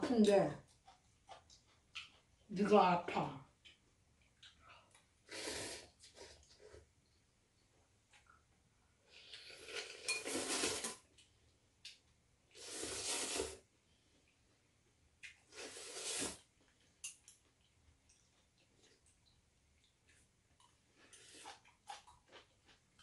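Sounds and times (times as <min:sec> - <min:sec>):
noodles slurped: 0:09.2 - 0:11.0, 0:12.5 - 0:13.6, 0:15.5 - 0:16.5.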